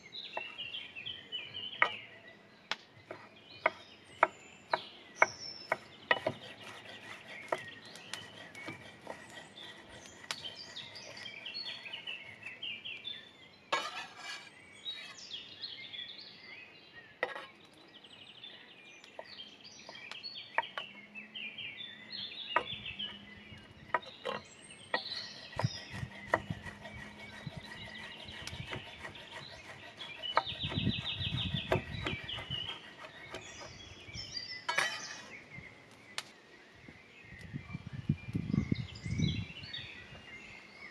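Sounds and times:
birds chirping and singing: 0.0 - 40.9
knife chopping on wooden board: 4.7 - 11.3, 23.9 - 33.6.

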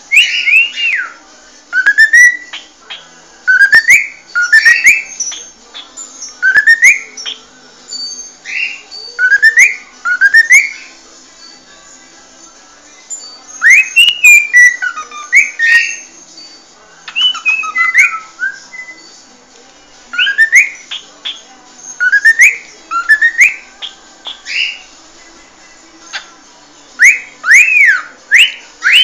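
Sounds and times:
cockatiel whistling: 0.1 - 1.2, 1.8 - 2.7, 3.5 - 10.9, 13.4 - 19.1, 20.1 - 24.8, 27.0 - 29.0.

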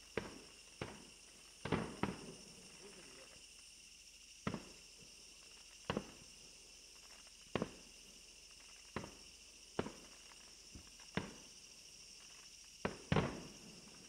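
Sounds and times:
high insect trill: 0.0 - 14.0
fireworks bangs: 1.6 - 3.0.

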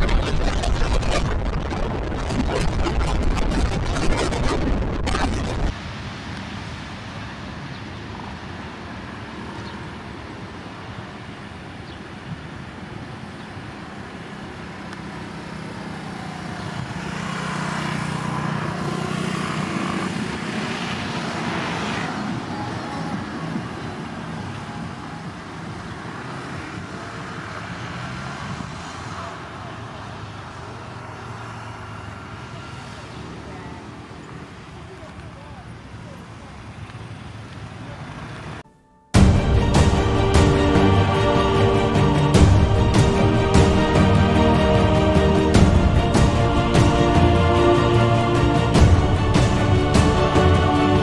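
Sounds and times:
jet engine roar: 0.0 - 10.0.

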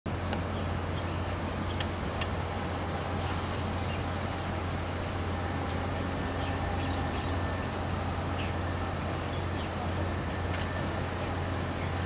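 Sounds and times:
outdoor harbour noise: 0.1 - 12.0.

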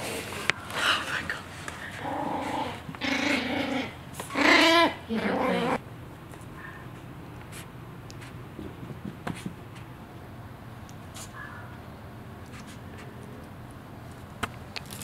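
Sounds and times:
puppy growling and whining: 1.9 - 5.8.

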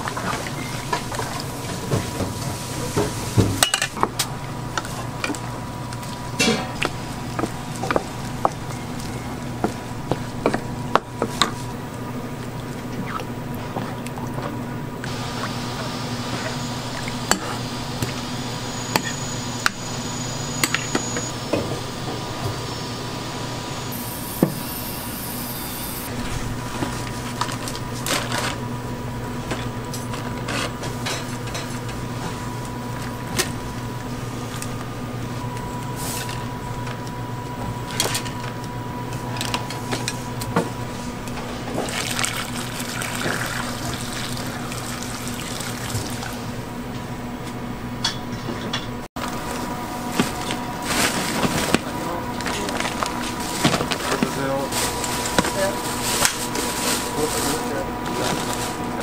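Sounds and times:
electrical hum: 0.0 - 59.0
utensils and pans clattering: 1.9 - 4.0, 6.4 - 6.9, 30.4 - 31.8.

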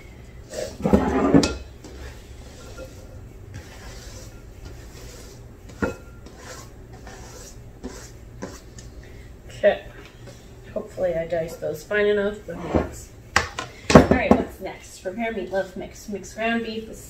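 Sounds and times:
knife scraping cutting board: 0.6 - 8.7.

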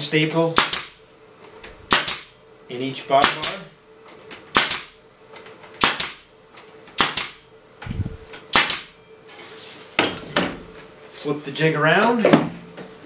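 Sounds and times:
pneumatic stapler shots: 0.6 - 1.0, 1.9 - 2.4, 3.2 - 3.6, 4.3 - 5.0, 5.7 - 6.3, 6.9 - 9.0.

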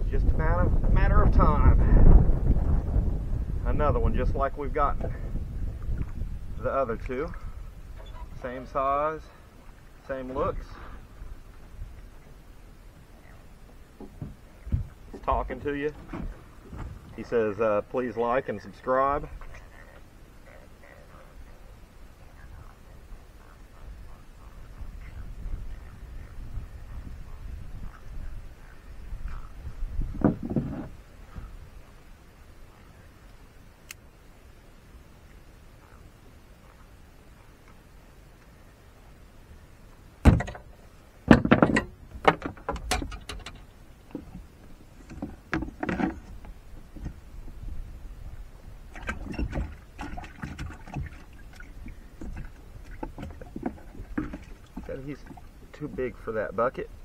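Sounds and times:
low rumble: 0.0 - 9.4
knocks and clatter on boat deck: 14.0 - 17.2, 30.0 - 31.6, 40.2 - 47.2, 48.9 - 55.5.

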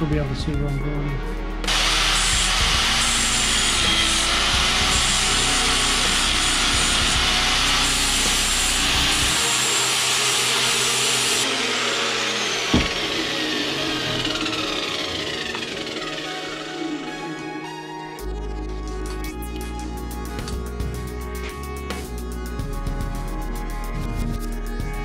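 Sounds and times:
angle grinder cutting steel: 1.6 - 18.2
grinder winding down whine: 1.6 - 25.0
tool knocked down: 12.7 - 13.1.

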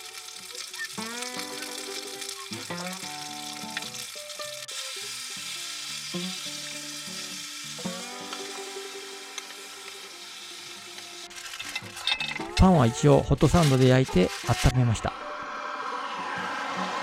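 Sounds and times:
cabbage sizzling in a frying pan: 0.0 - 12.6, 13.4 - 15.1
background music with held notes: 0.0 - 13.1.

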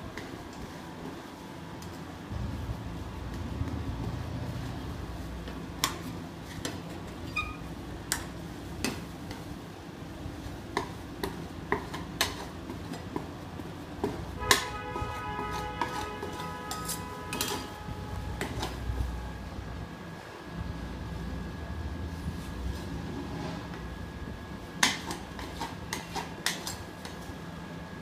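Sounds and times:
steady low hum: 0.0 - 28.0
spatulas tapping and scraping steel: 10.7 - 13.3, 14.0 - 17.8, 18.4 - 18.8, 24.8 - 27.2.

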